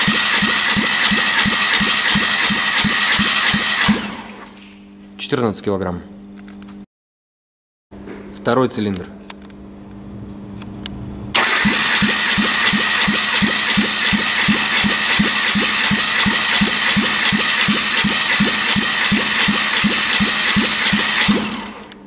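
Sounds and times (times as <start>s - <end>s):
engine starter cranking: 0.0s - 4.5s, 11.4s - 22.0s.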